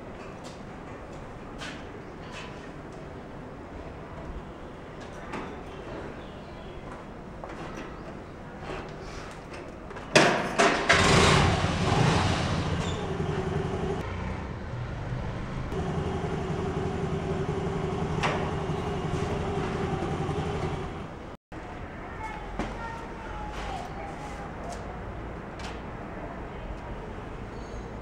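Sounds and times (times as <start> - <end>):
scooter engine starting and idling: 10.8 - 21.4.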